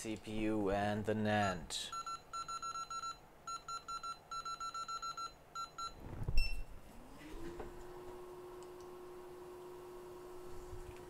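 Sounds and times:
blower whine and hum: 5.9 - 11.0.

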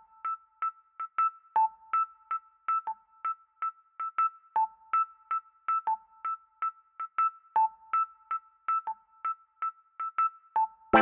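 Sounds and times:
light bouncing melody: 10.1 - 11.0.

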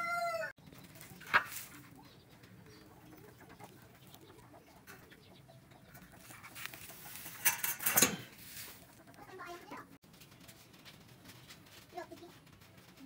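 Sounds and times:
chickens calling: 0.0 - 11.6
birds calling: 0.3 - 10.4.

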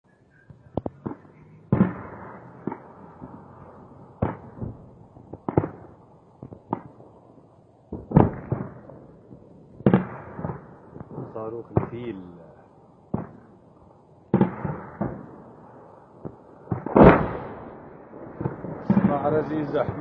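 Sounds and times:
distant explosions with echo: 0.5 - 20.0.

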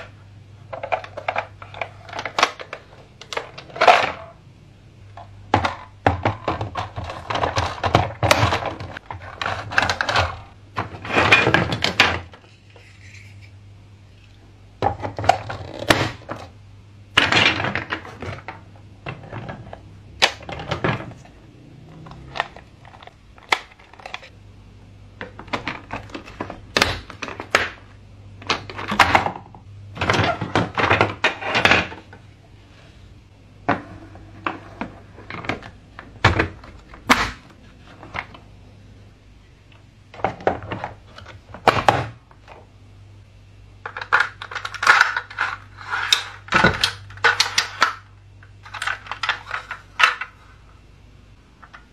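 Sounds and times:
plastic toy pieces clicking: 43.9 - 48.0.

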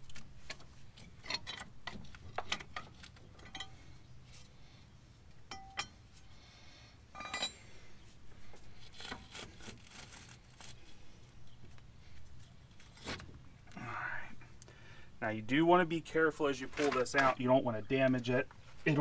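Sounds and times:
metal parts clinking: 2.4 - 3.8, 7.2 - 7.6.

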